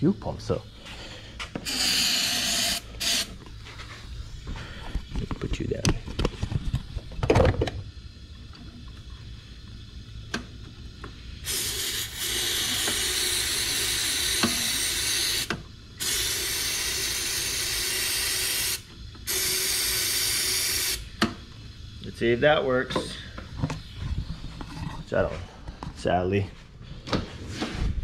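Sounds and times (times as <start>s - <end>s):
aerosol can spraying: 1.6s - 3.4s, 11.4s - 21.0s.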